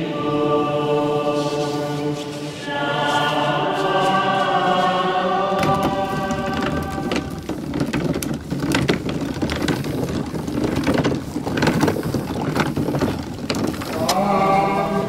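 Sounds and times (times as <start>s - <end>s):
small wheel rolling on road: 5.5s - 15.0s
knocks and clacks: 5.6s - 14.2s.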